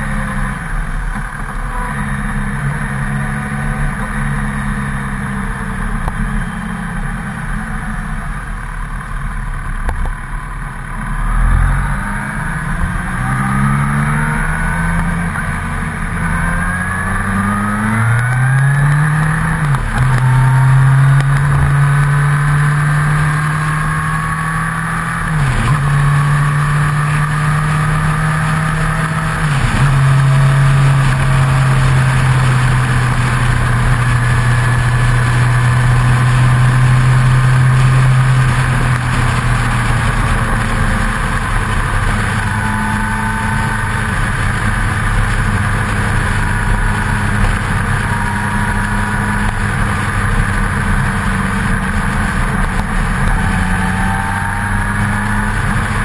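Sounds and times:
motorcycle engine accelerating: 0.0 - 56.0
road noise: 0.0 - 56.0
wind noise: 13.2 - 56.0.

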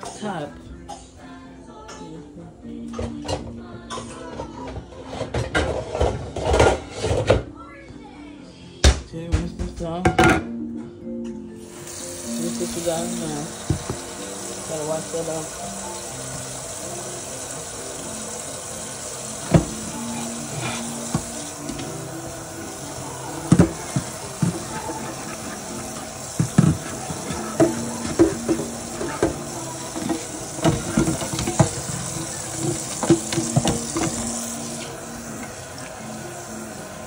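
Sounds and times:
tap water running into sink: 11.6 - 37.0
items knocking against sink: 13.1 - 14.2, 19.4 - 22.0, 23.2 - 34.4.

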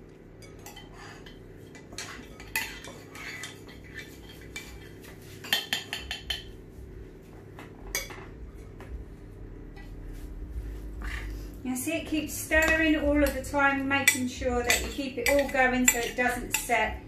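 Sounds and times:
utensil clinking against bowl: 12.5 - 17.0.

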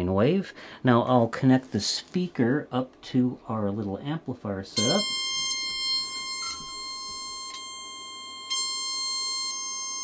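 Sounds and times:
steady test tone from speaker: 4.7 - 10.0.

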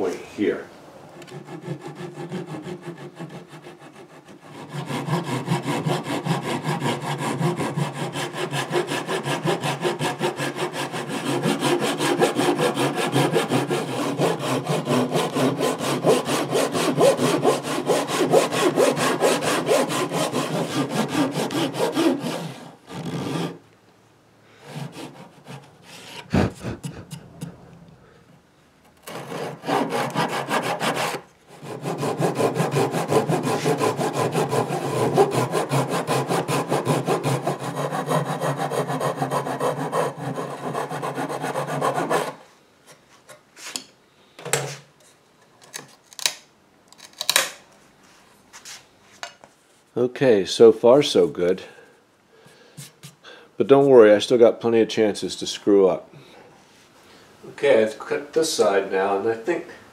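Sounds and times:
hand saw cutting wood: 1.2 - 23.6, 24.6 - 27.3, 29.0 - 42.4.

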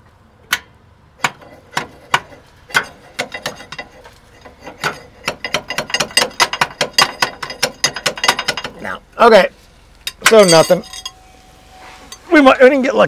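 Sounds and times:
metal taps on starter motor: 4.8 - 8.8.

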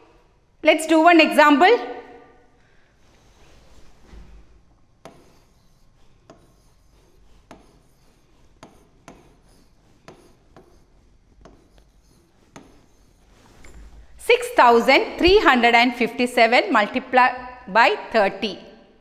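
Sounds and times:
stylus rubbing on screen: 3.0 - 16.8.

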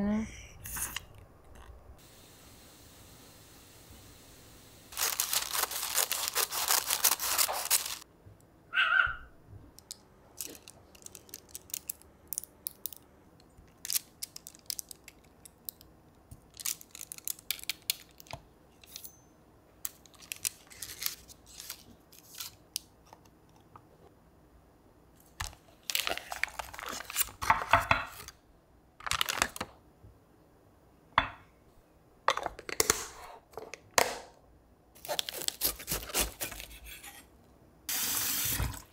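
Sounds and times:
paper and foil crinkling: 4.9 - 8.1, 10.4 - 12.0, 13.8 - 15.4, 16.5 - 18.3, 19.9 - 22.9, 25.4 - 28.2, 29.0 - 29.7, 35.0 - 36.7.

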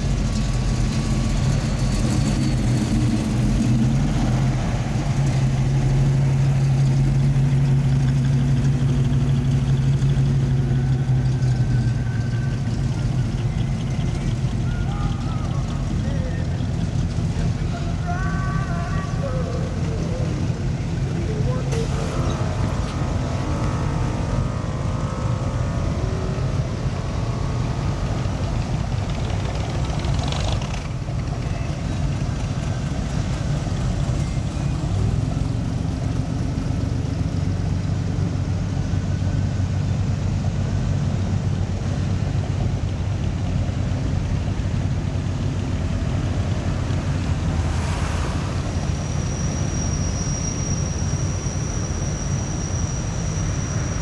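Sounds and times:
vintage car engines rumbling: 0.0 - 54.0
brief whooshes: 47.4 - 49.8
thin high whistle: 48.3 - 54.0.

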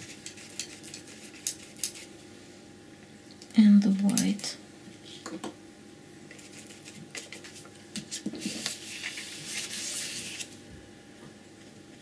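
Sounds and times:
paper sliding on table: 8.4 - 10.6.

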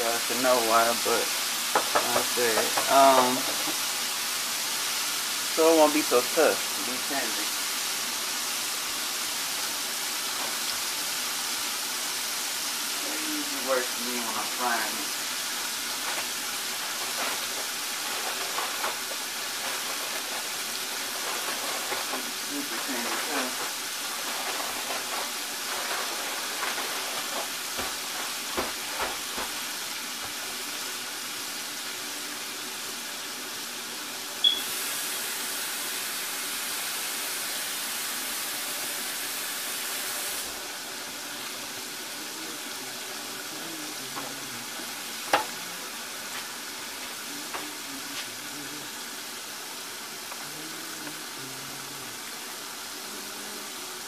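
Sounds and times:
deep-frying oil sizzle: 0.0 - 54.0.

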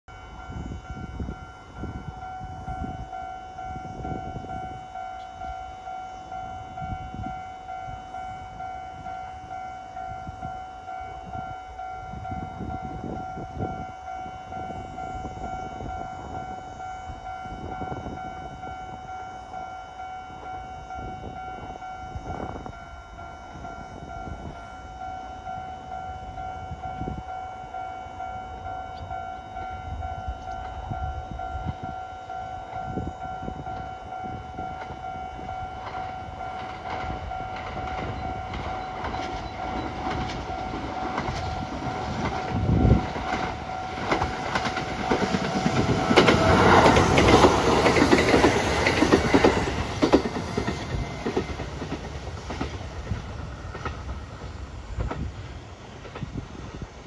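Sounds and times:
level-crossing alarm ringing: 0.0 - 57.0
wind on microphone: 10.1 - 19.0, 20.4 - 22.9, 28.9 - 57.0.

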